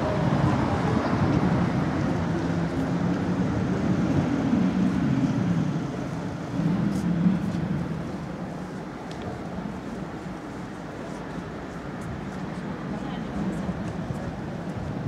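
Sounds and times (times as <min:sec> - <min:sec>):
street traffic rumble: 0:00.0 - 0:15.0.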